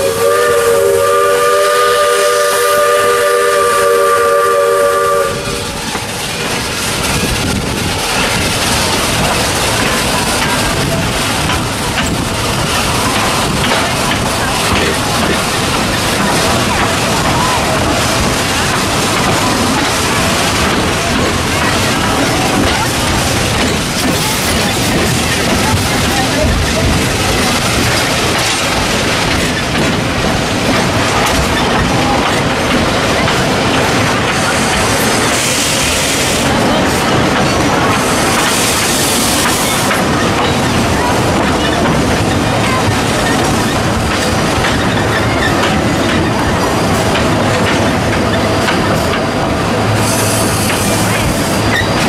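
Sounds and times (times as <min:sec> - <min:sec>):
steam hiss: 0:00.0 - 0:47.6, 0:48.2 - 0:52.0
train rumbling along track: 0:00.0 - 0:52.0
wheels clicking on rails: 0:00.0 - 0:52.0
wheel squeal: 0:50.0 - 0:52.0.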